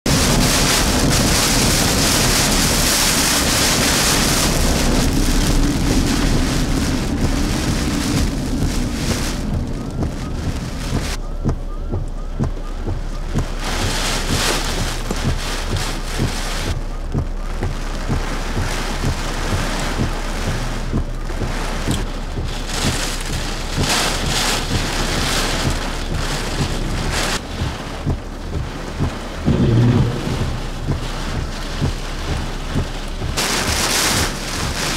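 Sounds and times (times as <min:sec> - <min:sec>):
rain spattering: 0:00.1 - 0:34.9
wind rushing: 0:29.4 - 0:33.3.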